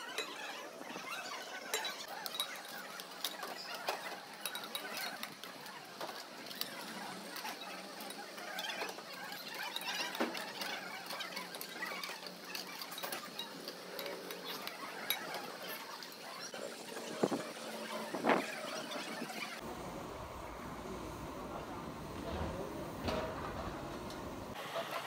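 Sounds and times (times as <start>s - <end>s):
plates and spoons clattering: 0.0s - 19.5s
busy background noise: 0.0s - 25.0s.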